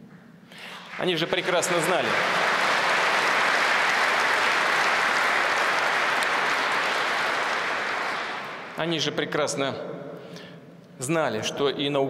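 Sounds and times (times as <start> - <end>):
audience applauding: 0.8 - 9.0.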